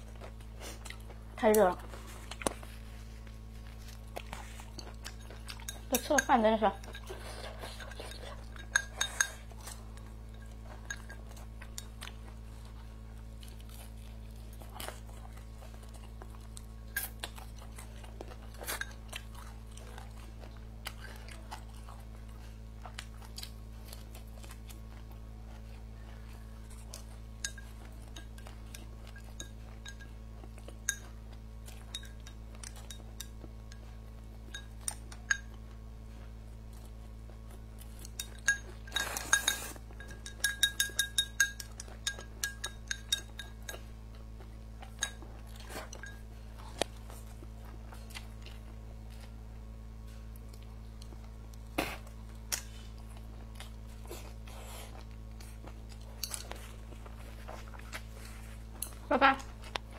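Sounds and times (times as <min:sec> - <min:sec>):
quiet chewing: 0:00.0 - 0:59.9
steady low hum: 0:00.0 - 0:59.9.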